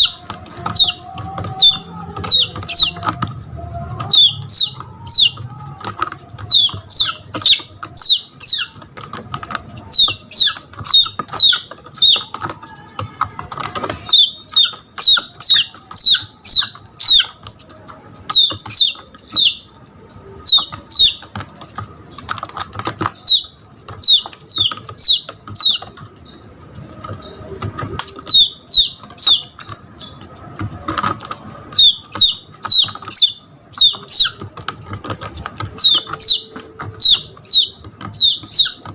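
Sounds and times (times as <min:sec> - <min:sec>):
chick peeping in distress: 0:00.0 - 0:38.9.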